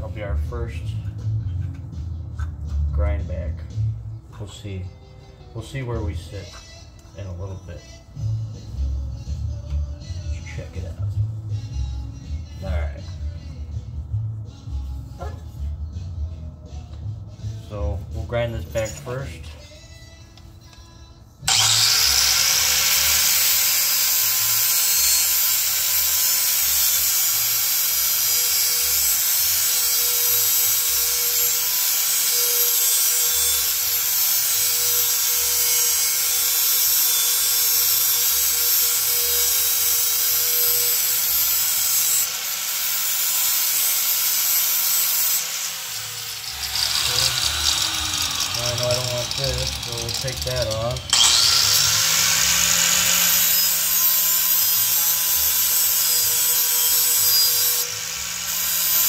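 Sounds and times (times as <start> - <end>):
angle grinder grinding metal: 18.4 - 19.7, 21.4 - 59.0.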